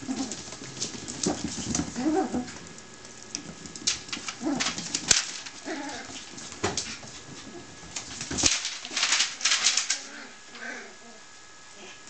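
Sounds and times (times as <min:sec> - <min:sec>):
claws clicking on vinyl floor: 0:00.1 - 0:10.7
puppy vocalisations: 0:01.9 - 0:02.6.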